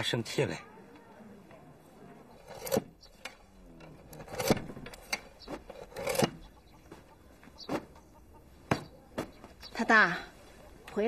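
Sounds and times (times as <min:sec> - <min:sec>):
sharp knocks and scrapes: 0:02.4 - 0:08.0.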